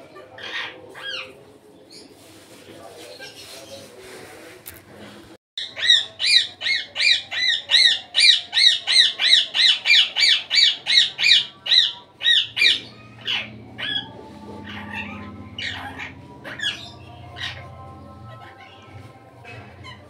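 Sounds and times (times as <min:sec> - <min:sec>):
parakeet squawking: 0:00.2 - 0:01.4, 0:05.6 - 0:20.0.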